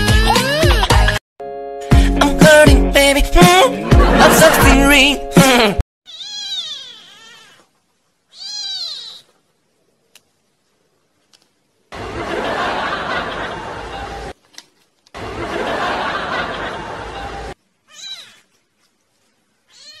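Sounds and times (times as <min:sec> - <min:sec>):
canned audience laughter: 0:03.8 - 0:04.8, 0:12.0 - 0:14.3, 0:15.2 - 0:17.6
kitten meowing: 0:06.1 - 0:07.7, 0:08.3 - 0:09.4, 0:17.9 - 0:18.5, 0:19.7 - 0:20.0.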